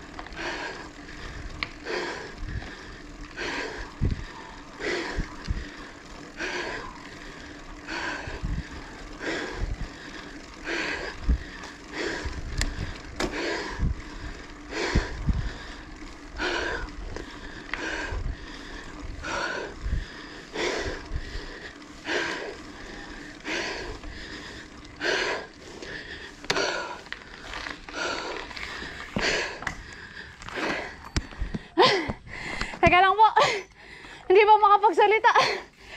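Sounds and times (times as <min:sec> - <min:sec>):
low rumble with thumps: 0:00.0 - 0:33.0
cyclist breathing hard: 0:00.0 - 0:35.9.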